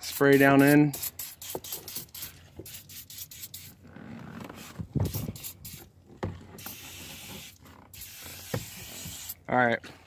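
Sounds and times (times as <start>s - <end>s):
aerosol spray hissing: 0.1s - 3.8s, 5.0s - 5.9s, 6.6s - 9.4s.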